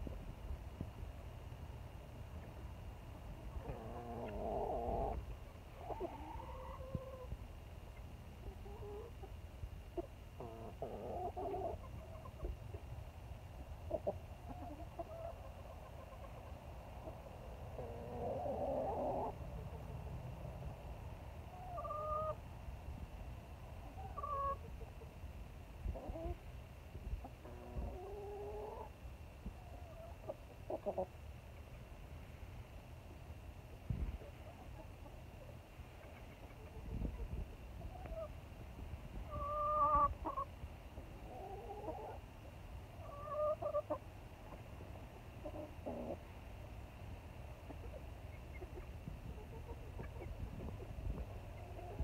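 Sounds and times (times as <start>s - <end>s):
low steady rumble: 0.0s - 52.0s
chickens calling: 3.4s - 13.0s, 13.6s - 20.1s, 21.4s - 22.4s, 23.7s - 25.2s, 25.8s - 31.9s, 33.8s - 46.4s, 47.3s - 52.0s
hens calling: 3.5s - 7.4s, 21.5s - 22.4s, 23.8s - 24.9s, 27.2s - 29.0s, 39.1s - 40.5s, 41.2s - 42.2s, 43.0s - 44.6s.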